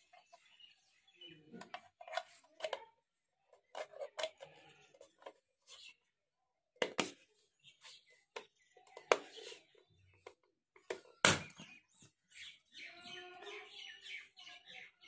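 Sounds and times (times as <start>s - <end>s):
plastic toy hull clicks and taps: 1.5s - 2.9s.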